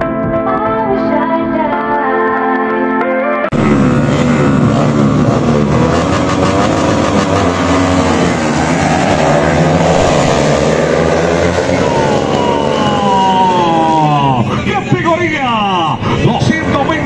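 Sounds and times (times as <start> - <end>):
racing motorcycles at full throttle: 3.5 - 17.0.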